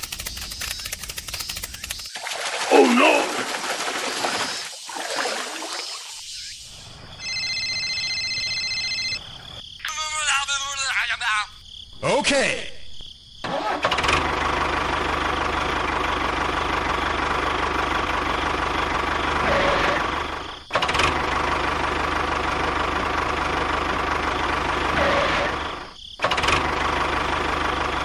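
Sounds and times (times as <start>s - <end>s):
tractor engine running: 0.0s - 4.7s, 13.5s - 28.0s.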